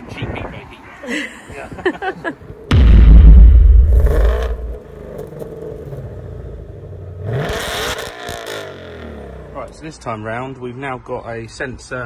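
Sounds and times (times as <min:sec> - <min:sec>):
car engine revving: 0:02.7 - 0:09.7.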